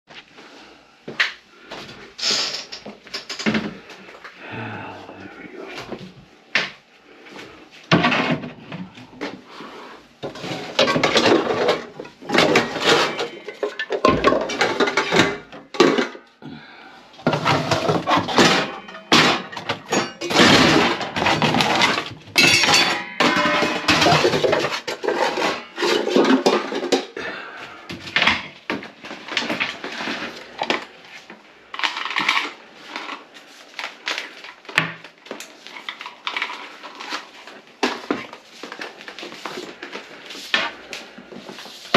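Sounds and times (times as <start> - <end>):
metal pots and pans clattering: 10.2 - 16.3, 17.2 - 27.4.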